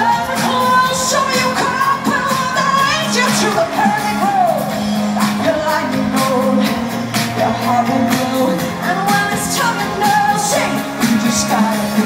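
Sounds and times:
amplified band playing: 0:00.0 - 0:12.0
woman singing: 0:00.0 - 0:12.0.

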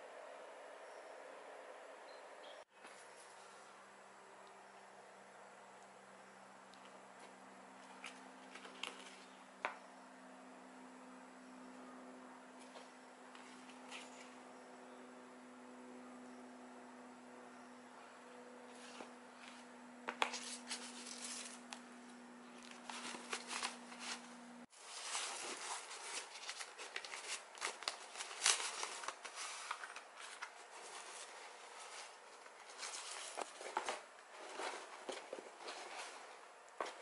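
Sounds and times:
paper and bags rustling: 0:20.3 - 0:21.7, 0:22.5 - 0:37.0.

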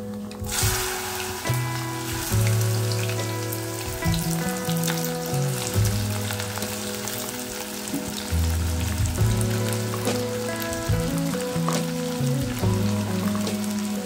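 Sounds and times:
background music with held notes: 0:00.0 - 0:14.0
okra sizzling in hot oil: 0:00.4 - 0:14.0.

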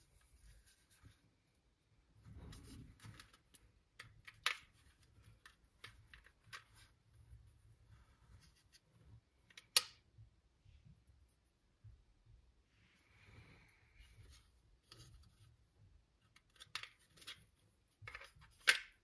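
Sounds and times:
soft rubbing: 0:00.0 - 0:03.3, 0:06.6 - 0:09.4.

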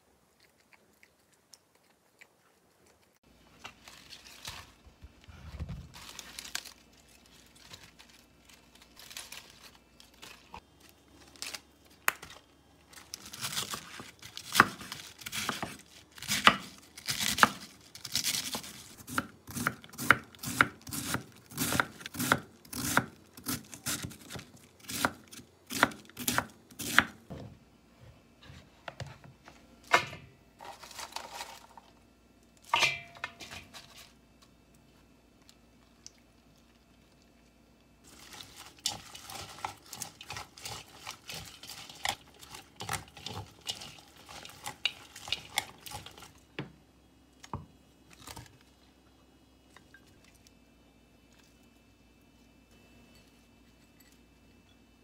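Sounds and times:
knife cutting crisp lettuce: 0:13.2 - 0:27.2.

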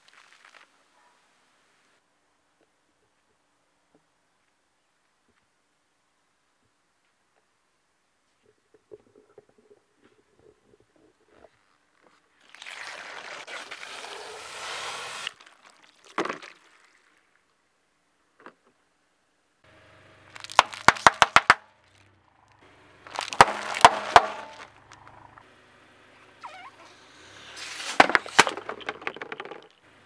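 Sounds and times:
hiss of escaping liquid and air: 0:14.0 - 0:15.4
plastic bottles cracking and crunching: 0:20.3 - 0:22.1, 0:23.1 - 0:24.9, 0:27.6 - 0:29.8
bottle popping: 0:23.1 - 0:24.7, 0:27.9 - 0:29.8.

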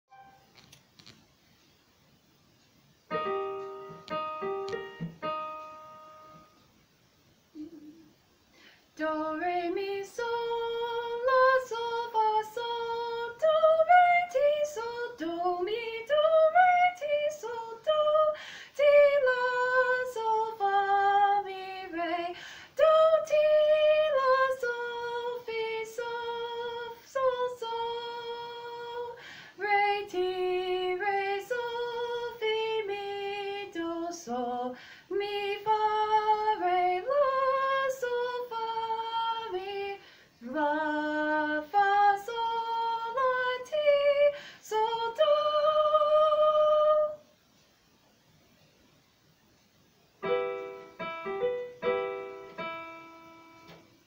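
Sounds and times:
woman singing unaccompanied: 0:09.0 - 0:47.3.

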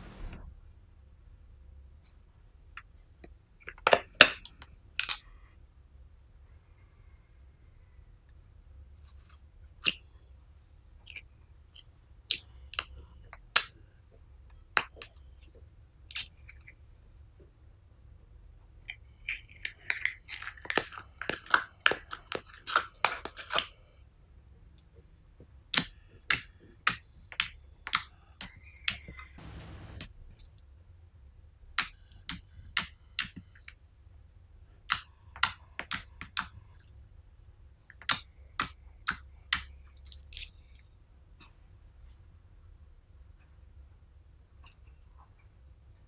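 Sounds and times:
slime clicking and popping: 0:34.9 - 0:36.8.

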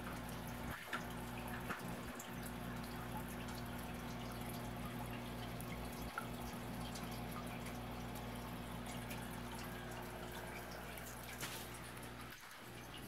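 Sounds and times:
filter low hum: 0:00.0 - 0:13.0
water trickling and dripping: 0:00.0 - 0:13.0.

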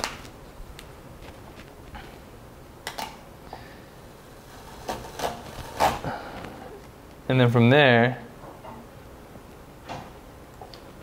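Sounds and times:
tape crackling and snapping: 0:00.0 - 0:02.2, 0:02.8 - 0:03.2.

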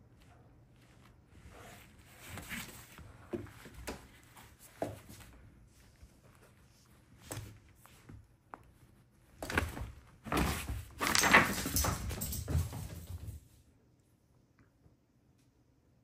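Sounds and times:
puppy rustling and thumping on bed: 0:00.9 - 0:13.4.

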